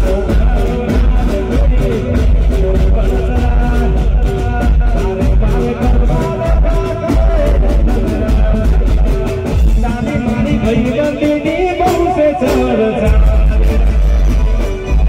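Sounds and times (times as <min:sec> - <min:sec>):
dance band music through a pa: 0:00.0 - 0:15.0
drums and bass beat: 0:00.0 - 0:15.0
person singing: 0:00.0 - 0:15.0.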